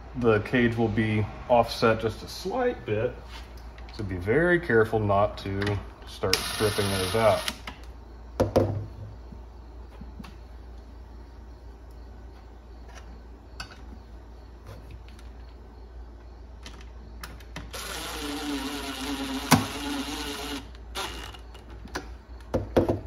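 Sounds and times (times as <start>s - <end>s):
cordless drill motor whine: 6.4s - 7.6s, 17.7s - 21.7s
sharp drill click: 6.4s - 7.7s, 17.7s - 21.5s.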